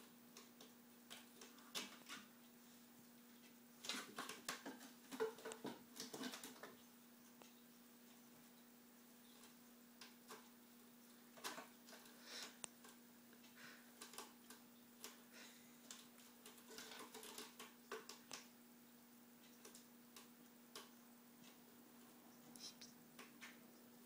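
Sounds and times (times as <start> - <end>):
cat claws scratching post: 15.9 - 18.5.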